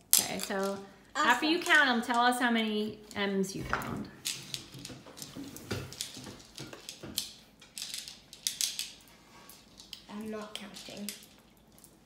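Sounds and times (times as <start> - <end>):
candies clicking on ceramic plate: 4.2 - 12.0.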